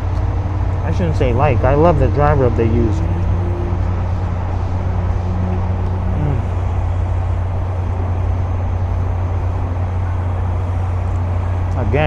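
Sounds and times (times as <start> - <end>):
motor vehicles rumbling: 0.0 - 12.0
man humming: 2.3 - 6.8.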